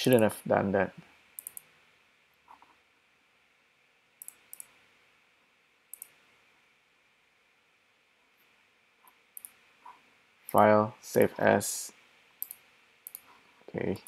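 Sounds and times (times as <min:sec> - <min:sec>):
computer mouse clicks: 0:01.4 - 0:01.7, 0:04.2 - 0:04.8, 0:05.9 - 0:06.2, 0:09.0 - 0:10.6, 0:12.4 - 0:13.4.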